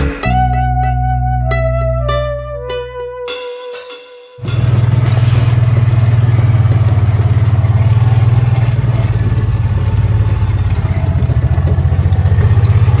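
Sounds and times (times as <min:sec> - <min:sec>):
vehicle engine throbbing: 0:04.4 - 0:13.0.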